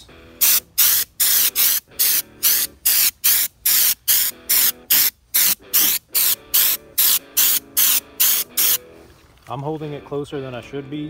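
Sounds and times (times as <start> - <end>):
spray gun hissing in bursts: 0.4 - 8.8.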